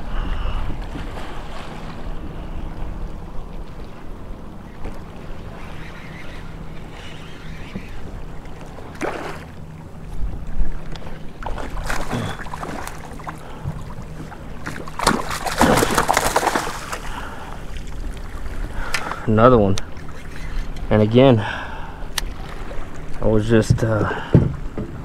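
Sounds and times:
fish splashing at surface: 14.8s - 17.1s.

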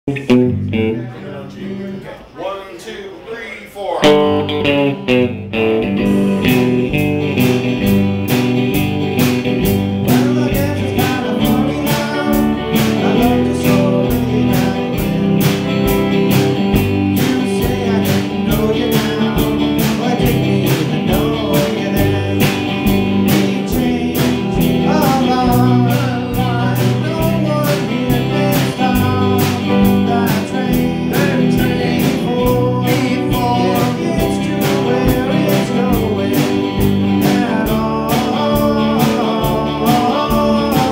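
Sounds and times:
rock band playing: 0.1s - 2.0s, 4.0s - 40.9s
man singing: 9.6s - 40.9s.

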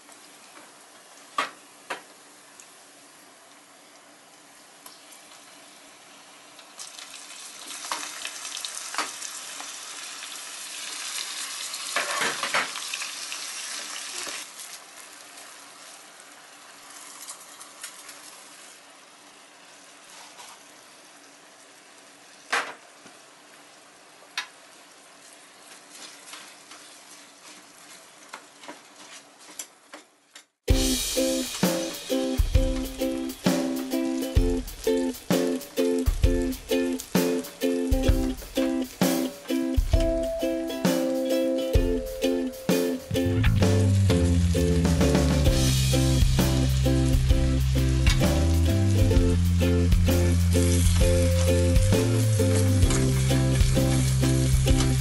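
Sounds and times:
seafood sizzling in oil: 0.1s - 28.3s, 45.5s - 55.0s
rice poured into pan: 10.8s - 18.9s.

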